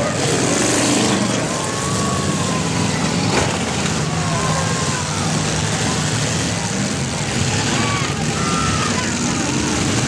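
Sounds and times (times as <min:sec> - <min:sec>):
car engines revving: 0:00.0 - 0:10.0
car bodies crashing: 0:03.2 - 0:04.0.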